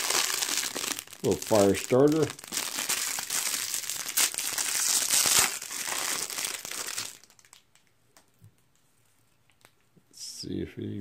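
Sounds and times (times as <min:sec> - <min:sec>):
plastic wrapping crinkling: 0:00.0 - 0:07.9.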